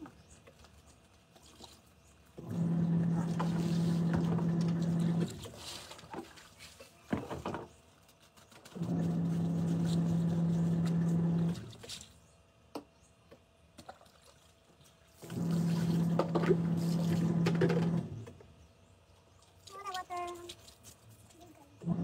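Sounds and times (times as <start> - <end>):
washing machine motor humming: 2.4 - 5.5, 8.8 - 11.8, 15.2 - 18.4, 21.8 - 22.0
water churning: 13.8 - 18.0.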